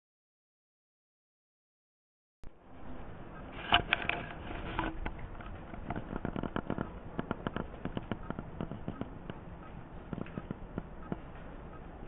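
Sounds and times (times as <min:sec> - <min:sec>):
blizzard crackling clicks: 0:03.4 - 0:12.0.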